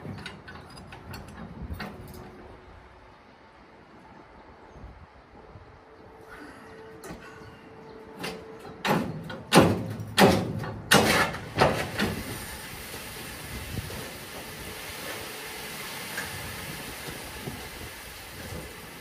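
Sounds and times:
freight wagons clanking: 0:00.0 - 0:02.7, 0:06.7 - 0:19.0
train wagons rumbling: 0:00.0 - 0:19.0.

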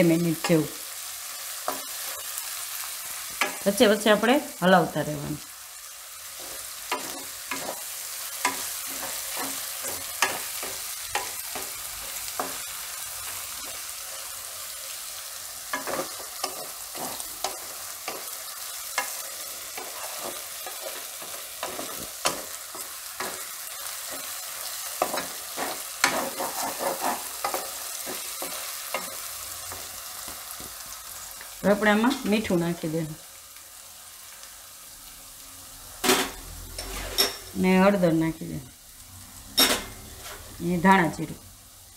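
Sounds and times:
onions sizzling in hot oil: 0:00.0 - 0:41.9
spatula scraping and knocking pan: 0:06.4 - 0:12.8, 0:15.6 - 0:30.9.

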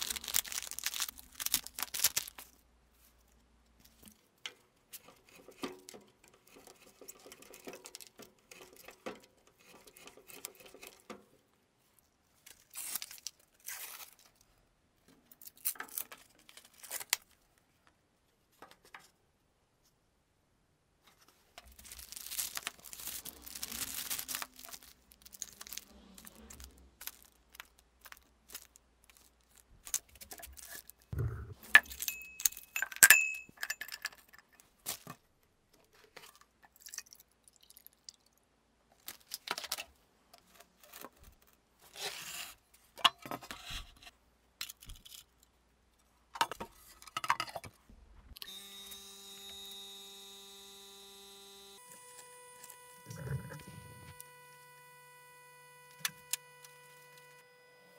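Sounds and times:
clicks and knocks of handled objects: 0:03.7 - 0:11.4, 0:21.1 - 0:37.3
glass clink: 0:31.9 - 0:33.9
vacuum pump humming: 0:48.4 - 0:57.9.

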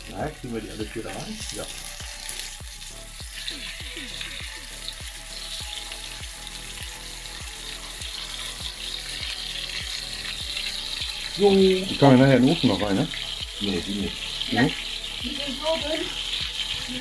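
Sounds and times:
low thumping beat: 0:00.0 - 0:17.0
patties sizzling in a frying pan: 0:00.0 - 0:17.0.

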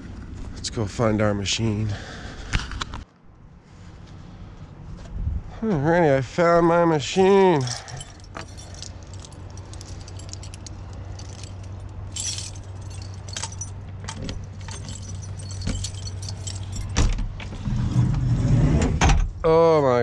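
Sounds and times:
metallic jingling and clicking: 0:07.3 - 0:17.1.

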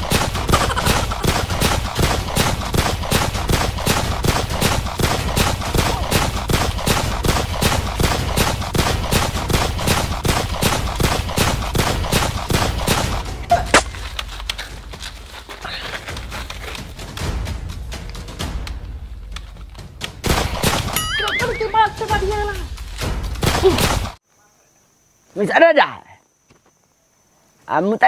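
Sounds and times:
automatic gunfire: 0:00.0 - 0:13.3, 0:20.2 - 0:21.0.

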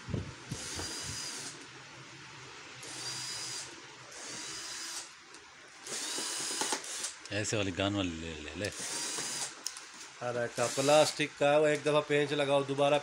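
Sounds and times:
power drill whirring: 0:00.5 - 0:01.6, 0:02.8 - 0:05.2, 0:05.8 - 0:07.3, 0:08.7 - 0:09.8, 0:10.6 - 0:11.2.

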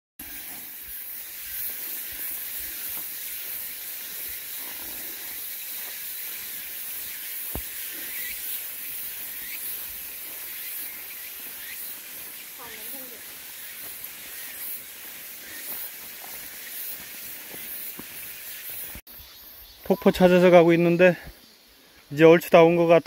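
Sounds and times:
high-pitched outdoor hiss: 0:00.2 - 0:23.0
footsteps on gravel: 0:01.6 - 0:19.0.

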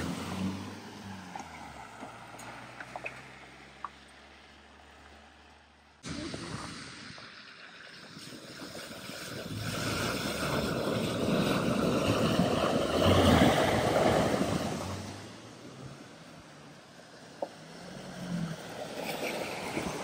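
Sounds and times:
water rushing and splashing: 0:06.0 - 0:20.0.

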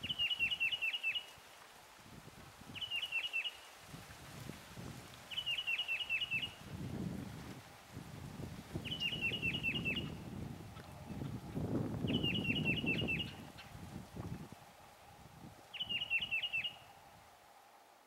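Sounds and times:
bird singing clear whistles: 0:08.8 - 0:10.2, 0:12.1 - 0:13.4, 0:15.7 - 0:16.9.

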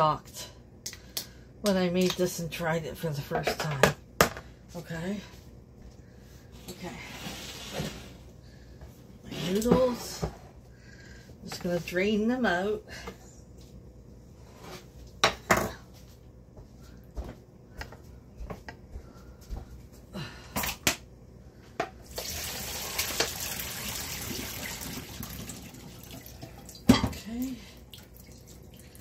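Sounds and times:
water pouring into sink: 0:22.1 - 0:26.9, 0:27.8 - 0:29.0.

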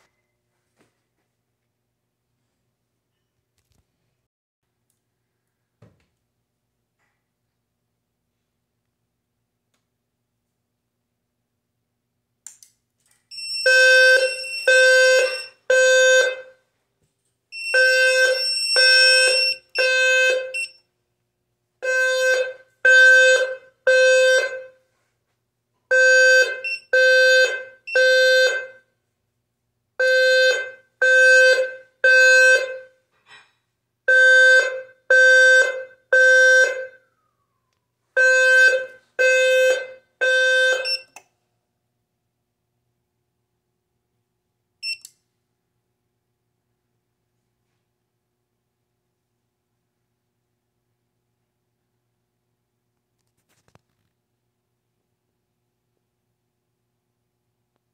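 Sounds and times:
fire alarm low-pitched tones: 0:13.3 - 0:16.6, 0:17.5 - 0:20.9, 0:21.8 - 0:24.8, 0:25.9 - 0:28.9, 0:30.0 - 0:33.0, 0:34.1 - 0:37.1, 0:38.2 - 0:41.2, 0:44.8 - 0:45.1.

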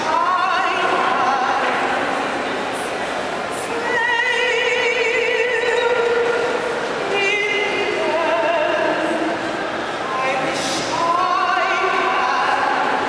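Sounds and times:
woman singing operatically: 0:00.0 - 0:01.7, 0:03.6 - 0:09.2, 0:10.1 - 0:13.0.

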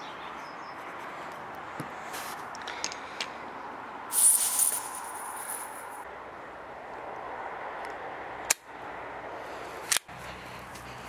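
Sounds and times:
gas hissing from a can: 0:04.1 - 0:06.0.

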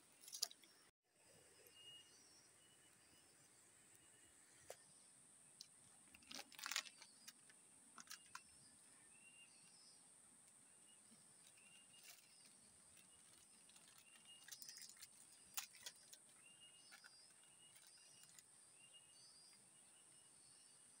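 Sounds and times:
high bird chirps: 0:10.8 - 0:20.3.

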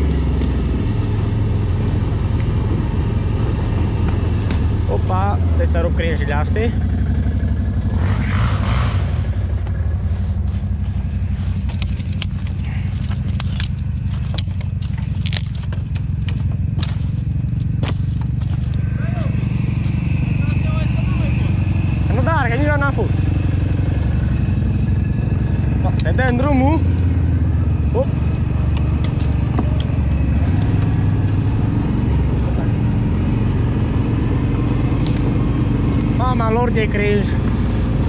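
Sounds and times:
atv engine running at low revs: 0:00.0 - 0:38.0
twigs and branches cracking: 0:10.5 - 0:19.0, 0:28.7 - 0:31.6, 0:34.7 - 0:36.1.

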